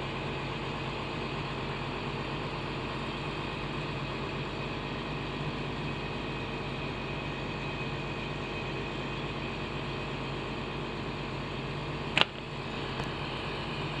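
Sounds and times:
sharp click: 12.1s - 12.5s.

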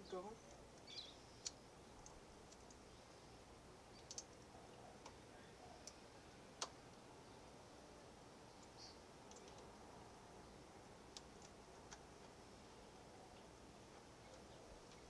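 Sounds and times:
faint sharp clicks: 0.5s - 2.8s, 3.9s - 5.2s, 6.6s - 6.8s, 8.6s - 9.7s.

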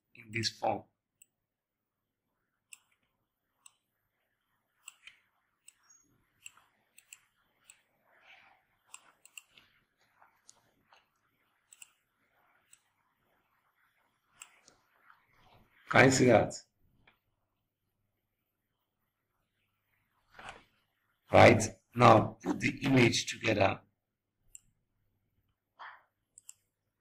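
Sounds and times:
computer mouse clicks: 2.7s - 3.9s, 4.8s - 8.0s, 8.8s - 9.8s, 10.4s - 13.0s, 14.3s - 14.9s, 24.5s - 24.8s, 26.3s - 26.8s.

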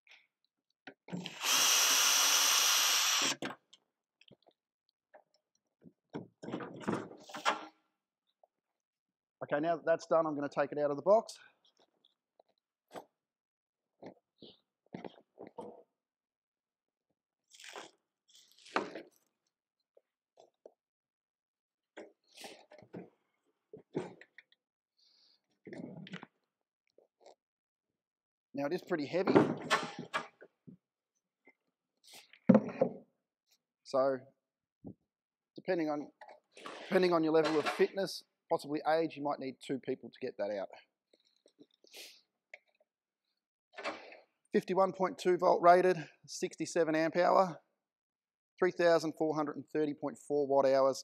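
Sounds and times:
cordless drill whining: 1.2s - 3.4s.

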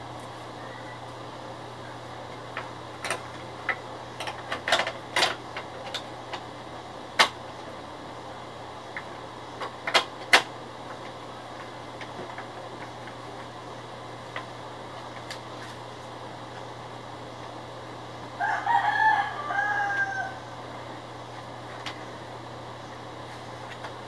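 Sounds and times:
steady low hum: 0.0s - 24.0s
clicks of plastic printer parts: 2.5s - 6.4s, 9.0s - 13.2s.

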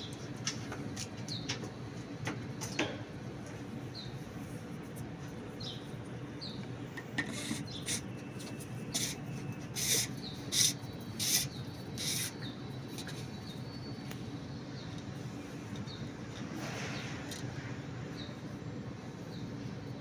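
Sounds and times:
steady low background hum: 0.0s - 20.0s
filter parts rasping rubs: 7.2s - 12.3s.

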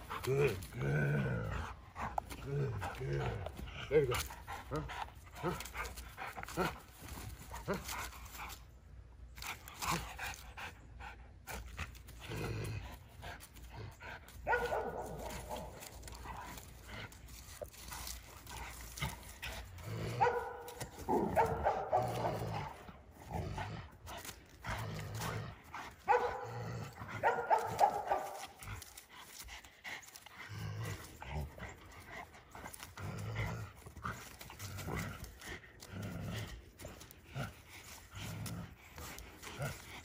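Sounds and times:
dog barking: 14.5s - 15.3s, 20.2s - 20.7s, 21.4s - 22.3s, 26.1s - 26.4s, 27.2s - 28.5s.

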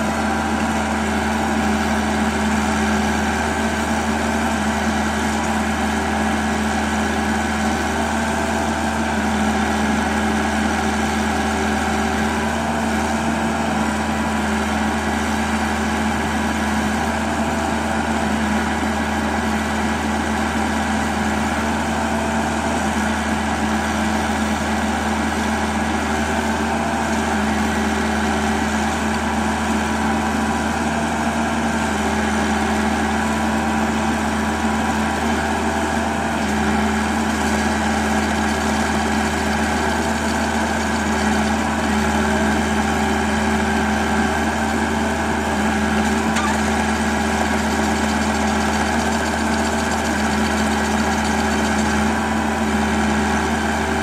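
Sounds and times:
drill rig hammering into stone: 45.9s - 52.2s.

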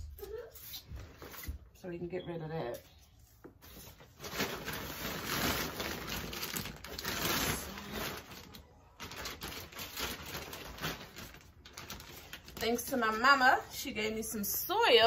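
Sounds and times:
plastic bags rustling: 3.6s - 15.0s.

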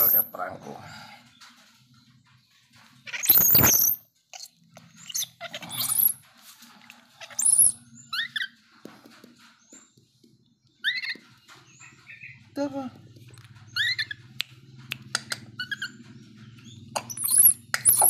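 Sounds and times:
baby monkey squealing: 0.0s - 0.3s, 3.0s - 6.2s, 7.2s - 8.6s, 10.8s - 11.3s, 13.7s - 14.4s, 15.1s - 16.0s, 17.0s - 18.0s
monkey chirps sliding in pitch: 3.2s - 4.0s, 7.3s - 8.4s, 17.1s - 18.0s.

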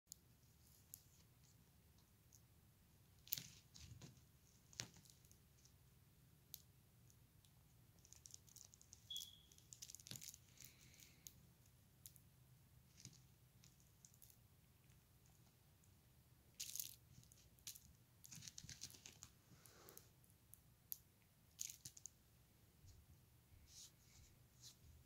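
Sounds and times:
brief high squeak: 9.1s - 9.5s
soft rustles: 22.8s - 25.0s.

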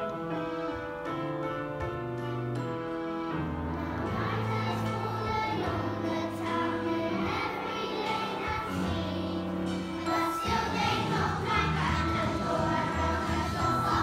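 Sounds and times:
musical accompaniment: 0.0s - 14.0s
children singing: 3.8s - 14.0s.

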